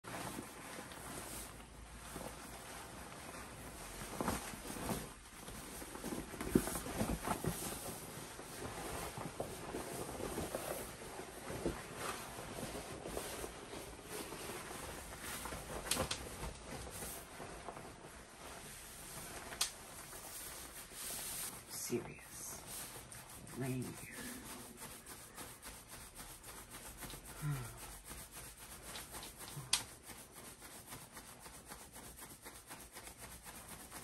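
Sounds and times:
plastic rainwear rustling: 0.0s - 34.0s.

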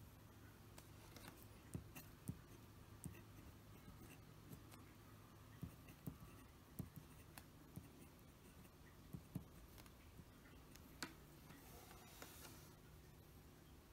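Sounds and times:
pen nib scratching on paper: 0.8s - 4.9s, 5.5s - 10.8s.

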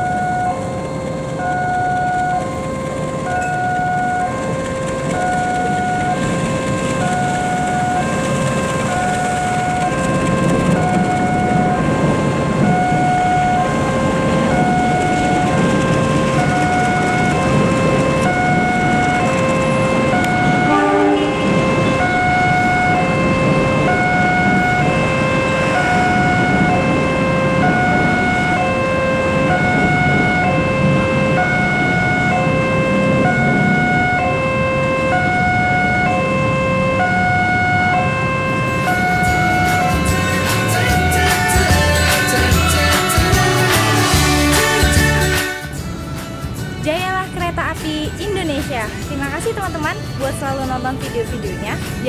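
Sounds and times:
train rumbling past: 0.0s - 52.0s
short rising run of notes: 37.9s - 46.8s.

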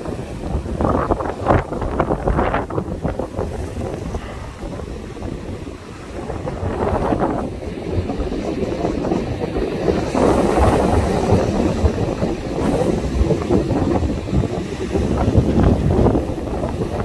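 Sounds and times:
storm wind buffeting microphone: 0.0s - 17.0s
surf rushing: 0.0s - 17.0s.

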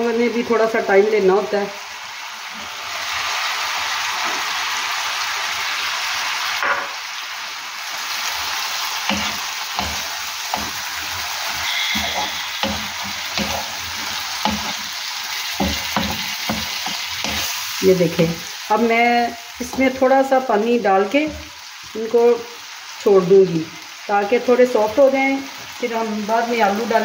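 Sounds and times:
food sizzling in hot oil: 0.0s - 27.0s
wooden spoon knocking pan: 9.1s - 14.9s, 15.5s - 18.4s.

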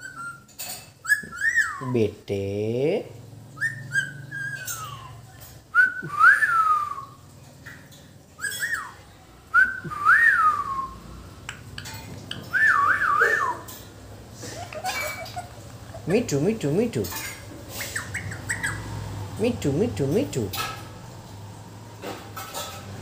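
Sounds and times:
person whistling: 5.8s - 7.1s, 9.6s - 11.0s.

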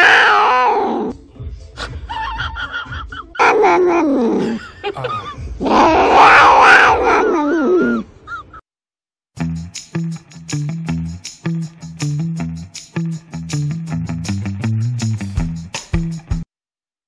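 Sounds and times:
cat yowling: 0.0s - 1.1s, 5.6s - 8.1s.

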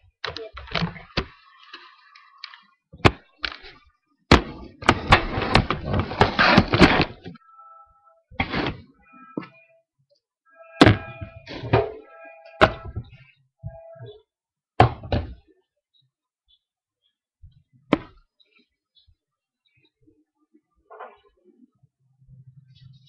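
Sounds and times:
brief high tones: 8.9s - 9.8s, 10.5s - 14.2s.

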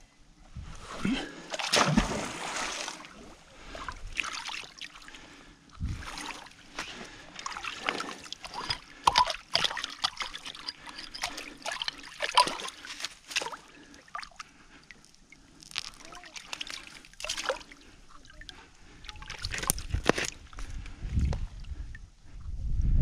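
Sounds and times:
pond water sloshing and splashing: 0.8s - 22.0s
crackles and clicks: 14.4s - 17.0s.

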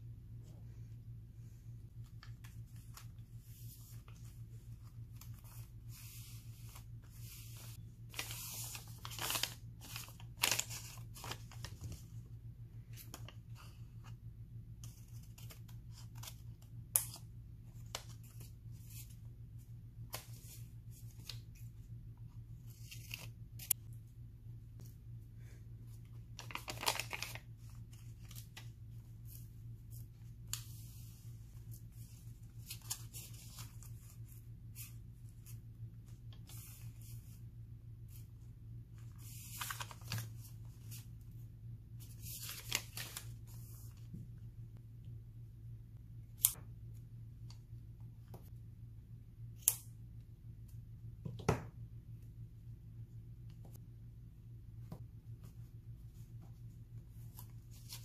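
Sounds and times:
faint low hum: 0.0s - 58.0s
paper rustling and tearing: 5.0s - 12.0s.

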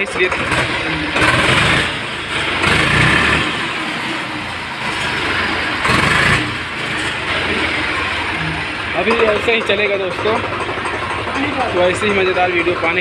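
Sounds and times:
tractor diesel engine running: 0.0s - 13.0s.

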